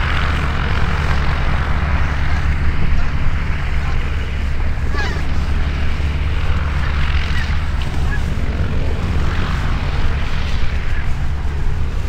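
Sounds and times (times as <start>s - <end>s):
distant propeller aircraft droning: 0.0s - 12.0s
low rumble: 0.0s - 12.0s.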